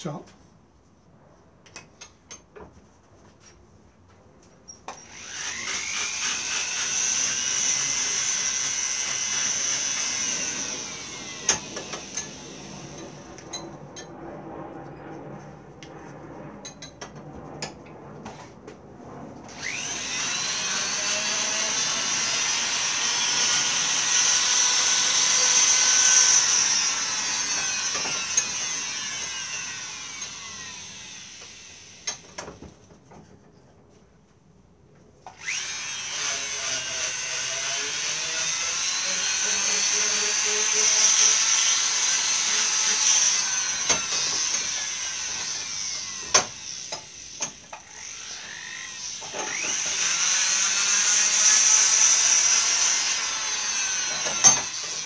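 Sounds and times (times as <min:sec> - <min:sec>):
rotary power tool whining: 0:04.8 - 0:32.8, 0:35.2 - 0:55.0.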